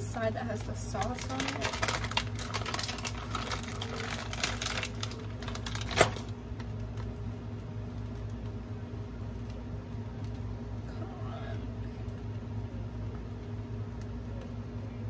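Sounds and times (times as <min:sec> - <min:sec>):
steady low hum: 0:00.0 - 0:15.0
plastic packet crinkling: 0:00.2 - 0:07.3
plastic packet snapping: 0:01.0 - 0:07.1.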